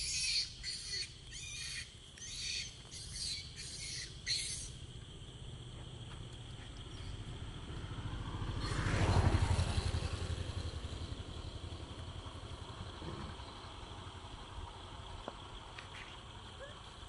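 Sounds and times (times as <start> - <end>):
vehicle passing: 5.3 - 15.7.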